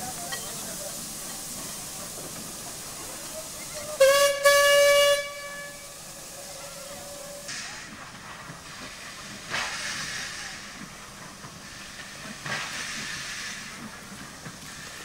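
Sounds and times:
steam hissing: 0.0s - 15.0s
steam locomotive whistle: 3.8s - 7.6s.

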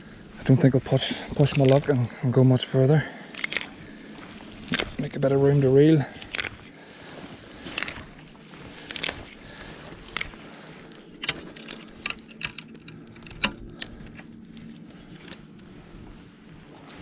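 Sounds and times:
reeds being pushed aside: 0.4s - 12.0s.

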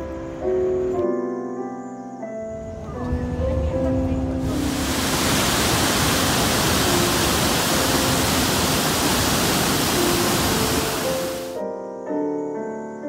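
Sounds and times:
waterfall rushing: 4.4s - 11.6s.

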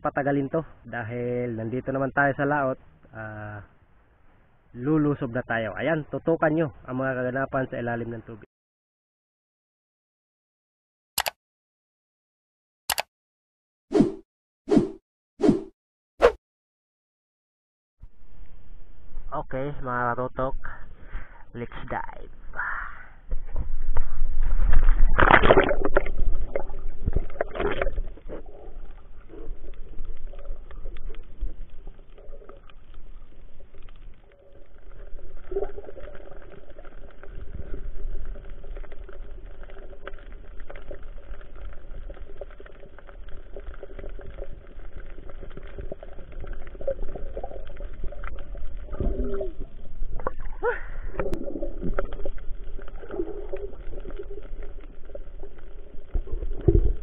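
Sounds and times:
faint underwater crackling: 22.3s - 57.0s
muffled underwater water wash: 23.2s - 57.0s.

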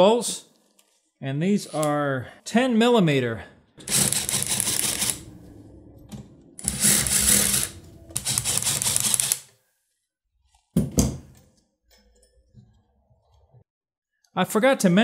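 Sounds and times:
cordless power tool running: 3.8s - 5.4s, 6.6s - 9.4s.

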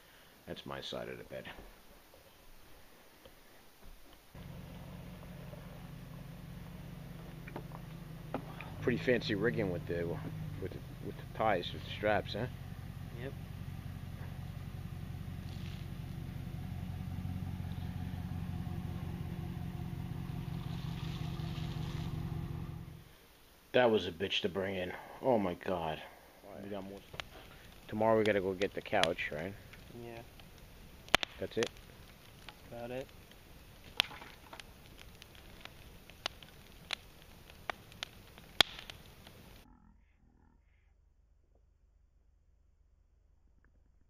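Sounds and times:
wood fire crackling and popping: 3.2s - 39.6s
pickup truck engine running: 4.4s - 23.1s.

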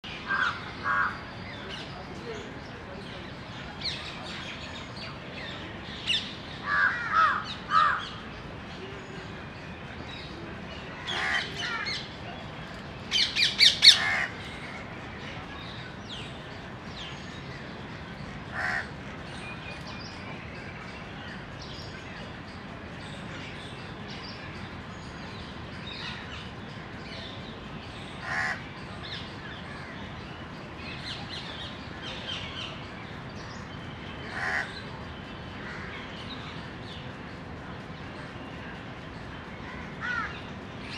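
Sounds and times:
crows cawing: 6.6s - 8.0s, 18.6s - 18.9s, 34.3s - 34.7s, 40.0s - 40.3s.

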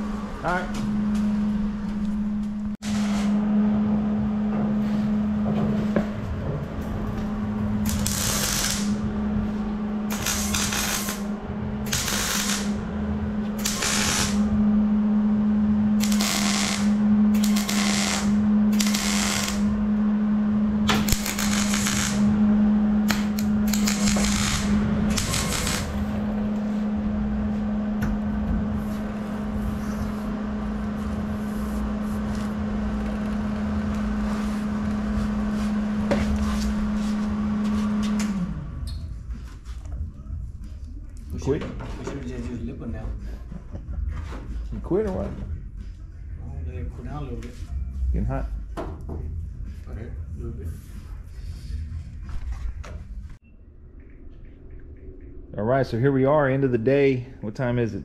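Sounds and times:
steady low hum: 0.0s - 58.0s
welder crackling: 7.8s - 9.0s, 10.1s - 12.8s, 13.6s - 14.5s, 16.0s - 19.8s, 20.9s - 22.4s, 23.0s - 26.7s.

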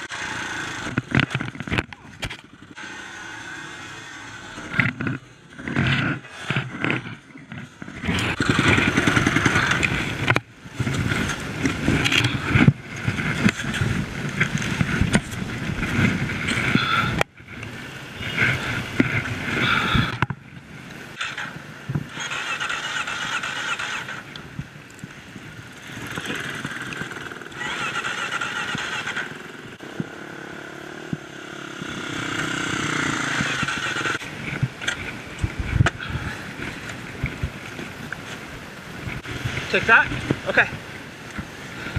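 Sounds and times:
dirt bike engine revving: 0.0s - 20.2s, 21.2s - 24.3s, 25.6s - 34.4s.

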